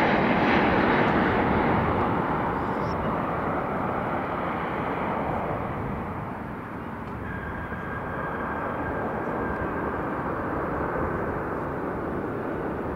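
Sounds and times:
jet engines rushing: 0:00.0 - 0:12.9
faint high whine: 0:02.0 - 0:03.8, 0:06.2 - 0:12.9.

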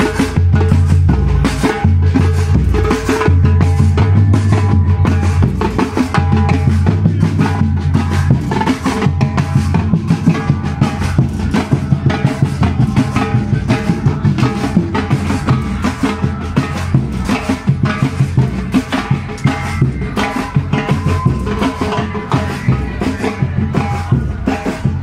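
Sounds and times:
samba percussion band: 0:00.0 - 0:25.0.

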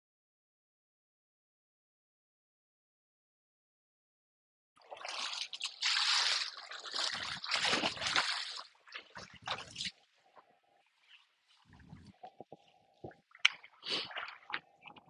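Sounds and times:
shallow water sloshing: 0:04.8 - 0:15.0.

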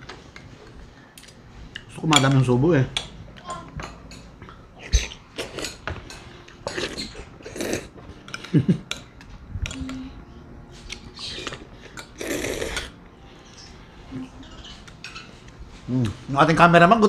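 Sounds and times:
cutlery scraping on ceramic plate: 0:03.8 - 0:07.6, 0:14.5 - 0:15.5
mouth eating sounds: 0:06.6 - 0:08.5, 0:10.9 - 0:13.0.

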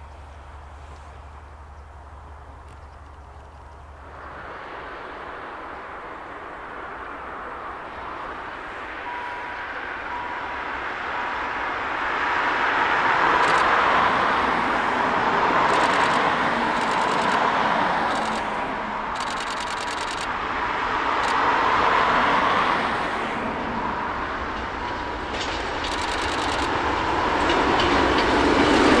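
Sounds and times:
steam train running: 0:03.4 - 0:29.0
sharp clicks: 0:13.4 - 0:13.8, 0:15.6 - 0:17.5, 0:18.1 - 0:18.5, 0:19.2 - 0:20.3, 0:25.8 - 0:26.8.

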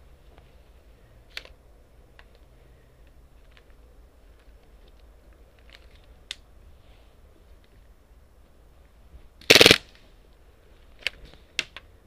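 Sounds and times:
airsoft gun burst: 0:09.4 - 0:09.9
sharp clicks: 0:09.4 - 0:09.9.

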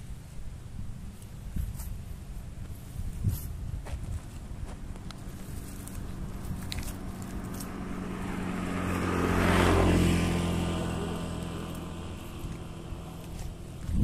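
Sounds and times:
vehicle engine passing by: 0:04.3 - 0:14.0.

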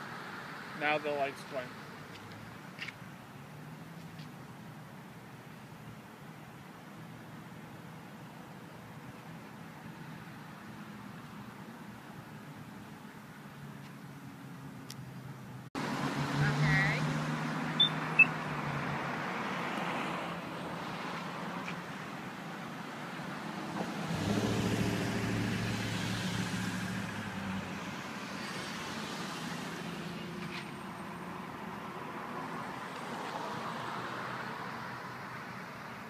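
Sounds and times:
car engines and tyre noise: 0:00.0 - 0:36.0
vehicle passing: 0:15.8 - 0:22.3, 0:23.1 - 0:35.2.

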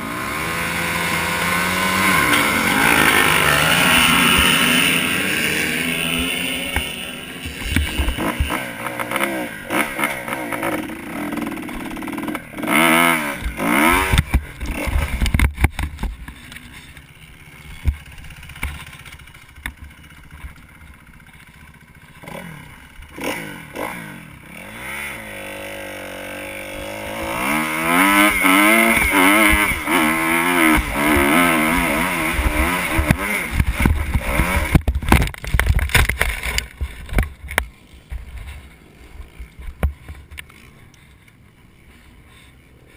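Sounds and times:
motocross bike engine revving: 0:00.0 - 0:41.1
camera wind rumble: 0:32.4 - 0:41.9.

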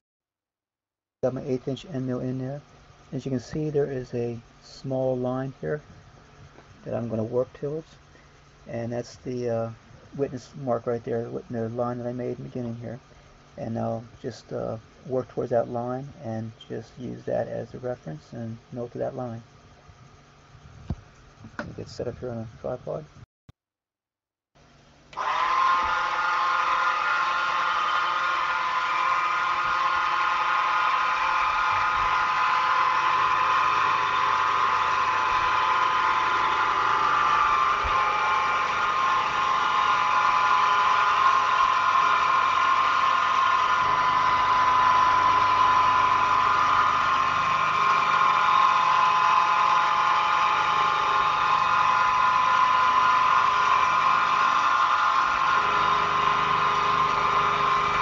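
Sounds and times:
milling machine spindle whining: 0:25.1 - 0:58.0
end mill cutting metal: 0:25.2 - 0:58.0.

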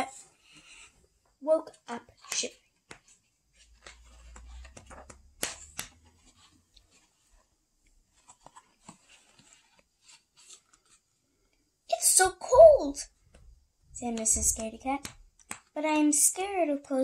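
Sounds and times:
book page turning: 0:01.8 - 0:11.6
paper rustling and crinkling: 0:02.1 - 0:11.2.

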